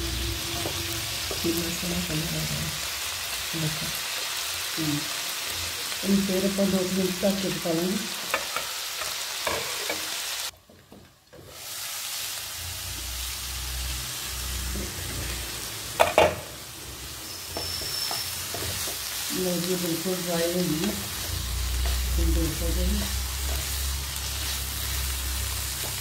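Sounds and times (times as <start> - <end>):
vegetables sizzling in a frying pan: 0.0 - 26.0
spatula stirring: 17.4 - 19.3.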